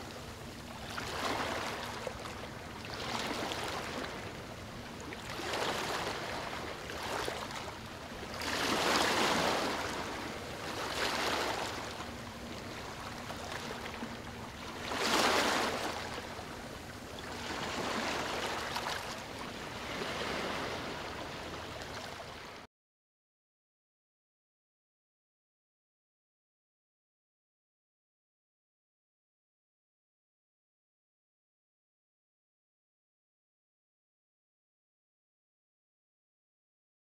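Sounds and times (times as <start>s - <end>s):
ocean waves washing in: 0.1s - 22.6s.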